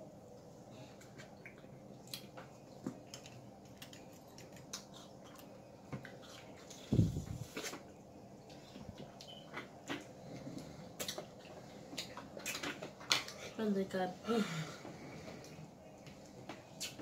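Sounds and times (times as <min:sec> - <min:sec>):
small clicks and soft smacking: 0:01.0 - 0:06.2.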